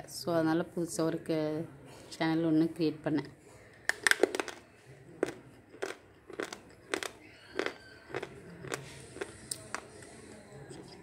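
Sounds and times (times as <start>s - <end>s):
dry chewing crunches: 5.2s - 10.1s.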